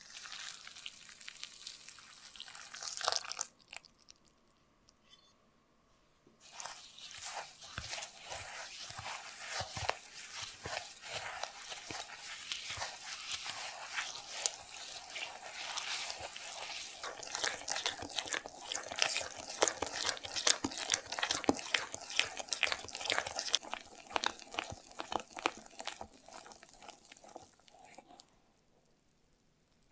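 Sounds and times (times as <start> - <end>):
spatula stirring wet crumbs: 6.4 - 28.4.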